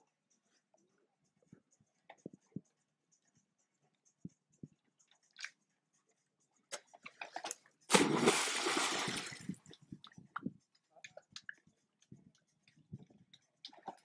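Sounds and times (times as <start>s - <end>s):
dog splashing into water: 7.9s - 9.5s
water churning: 7.9s - 9.5s.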